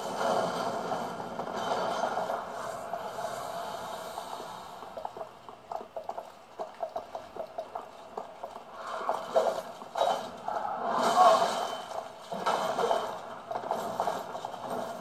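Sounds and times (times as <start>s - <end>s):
game ambient wash: 0.0s - 15.0s
clanking armoured footsteps: 4.2s - 15.0s.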